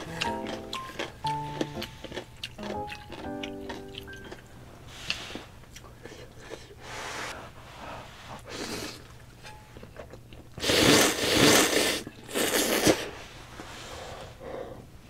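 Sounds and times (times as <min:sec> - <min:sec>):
chewing: 0:00.0 - 0:06.8
person slurping noodles: 0:10.6 - 0:13.2.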